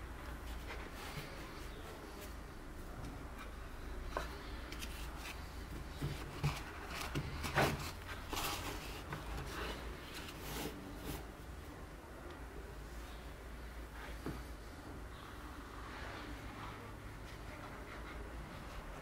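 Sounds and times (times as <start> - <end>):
soft rustling and rubbing: 0.2 - 11.5.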